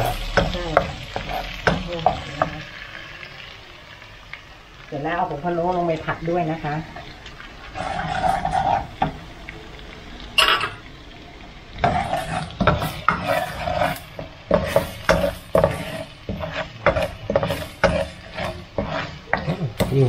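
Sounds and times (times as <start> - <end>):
spatula scraping pan: 0.0 - 2.7, 6.9 - 9.2, 11.8 - 20.0
light sizzle in oil: 0.0 - 20.0
metal clank: 10.4 - 10.8.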